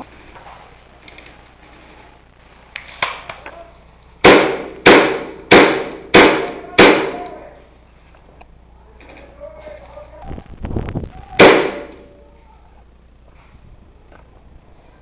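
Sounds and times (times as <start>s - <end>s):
airsoft gun shots: 4.2s - 7.4s, 11.4s - 12.1s.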